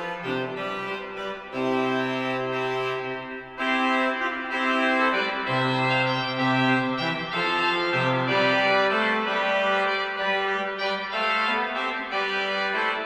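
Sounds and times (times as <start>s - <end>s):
organ chords: 0.0s - 13.0s.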